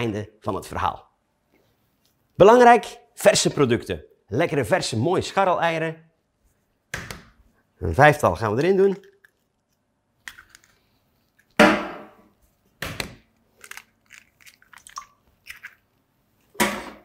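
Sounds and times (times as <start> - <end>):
eggs cracked on metal bowl: 12.8 - 15.8
eggshells crackling: 13.4 - 16.0.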